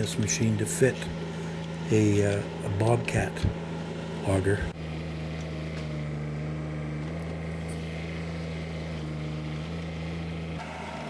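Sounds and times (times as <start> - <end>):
diesel engine running: 0.0 - 11.0.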